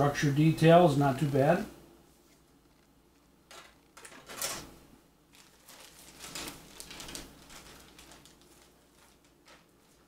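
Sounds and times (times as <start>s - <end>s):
plastic bag crinkling: 5.3s - 10.0s.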